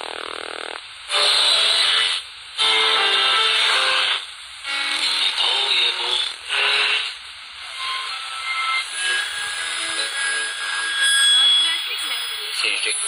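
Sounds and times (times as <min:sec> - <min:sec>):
hissing radio static: 0:00.0 - 0:08.0, 0:11.4 - 0:13.0
radio broadcast snatches: 0:04.9 - 0:07.5
faint steady whistle tones: 0:07.7 - 0:13.0.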